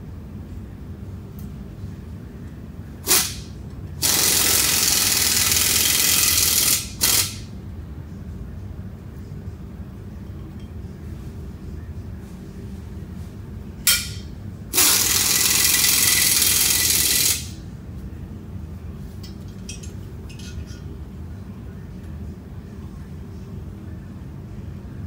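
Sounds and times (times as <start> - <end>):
low shop hum: 0.0 - 25.0
compressed air hissing: 3.1 - 5.0.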